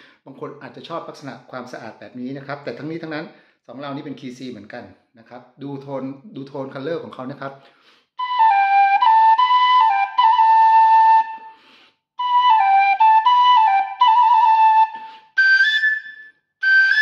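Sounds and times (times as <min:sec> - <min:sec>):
vertical flute melody: 0:08.2 - 0:17.0.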